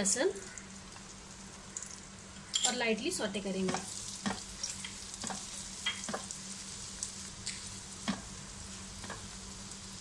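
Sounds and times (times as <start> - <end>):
garlic sizzling in oil: 0.0 - 10.0
spatula tapping and scraping pan: 3.6 - 6.3, 7.5 - 8.3, 9.0 - 9.3.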